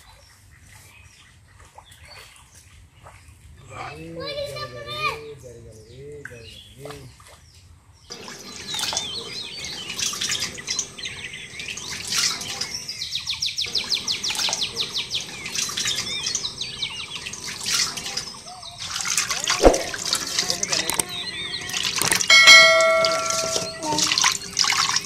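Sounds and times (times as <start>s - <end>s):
birds chirping: 1.9s - 25.0s
bird trill: 8.1s - 25.0s
water splashing: 8.1s - 25.0s.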